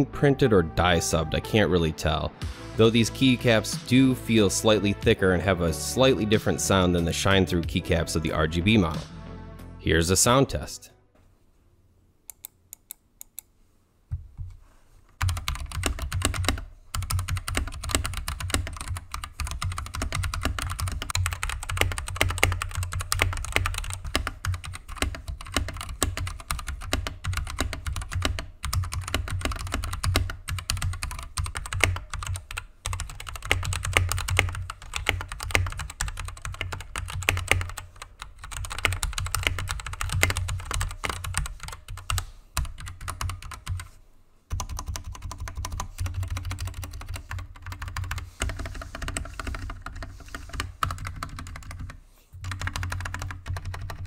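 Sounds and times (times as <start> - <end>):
mechanical keyboard typing: 15.2 - 43.9, 44.5 - 54.0.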